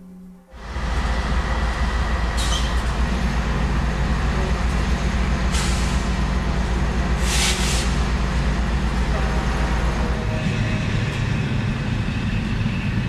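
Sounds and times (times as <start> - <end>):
freight train rumbling: 0.0 - 13.0.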